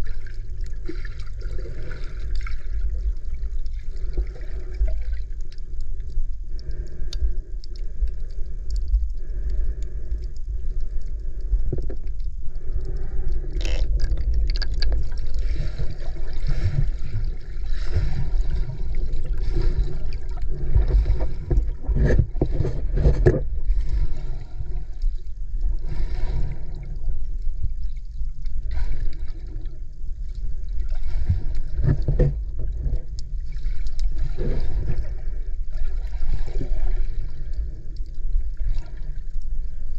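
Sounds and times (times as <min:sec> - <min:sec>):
water gurgling: 0:00.0 - 0:27.1
muffled underwater rumble: 0:00.0 - 0:39.9
sharp clicks underwater: 0:00.4 - 0:23.6.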